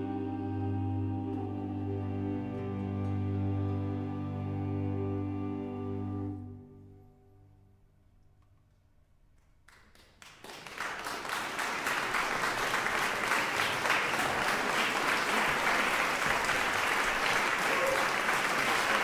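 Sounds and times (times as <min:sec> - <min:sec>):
audience applauding: 0:09.7 - 0:19.0.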